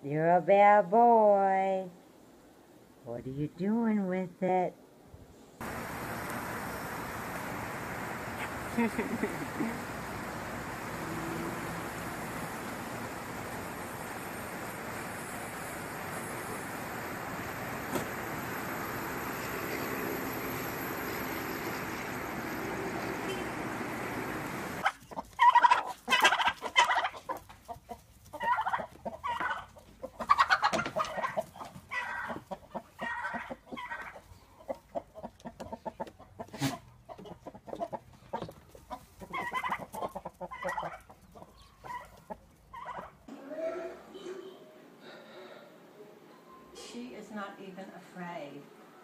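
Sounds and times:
hens clucking: 0:05.6 - 0:15.0, 0:21.0 - 0:43.4
street noise: 0:05.6 - 0:25.0
turkey calling: 0:21.4 - 0:27.4, 0:28.3 - 0:43.2.

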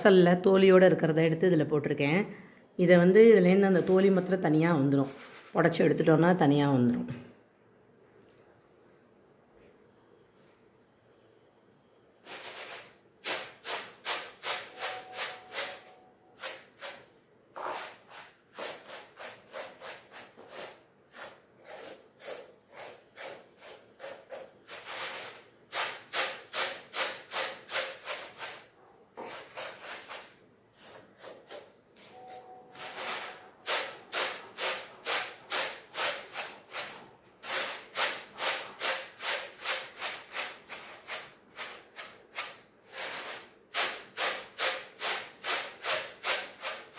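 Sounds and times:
grain rustling on winnowing tray: 0:05.0 - 0:05.6, 0:12.2 - 0:17.0, 0:23.6 - 0:28.6, 0:29.2 - 0:31.2, 0:32.8 - 0:46.9.

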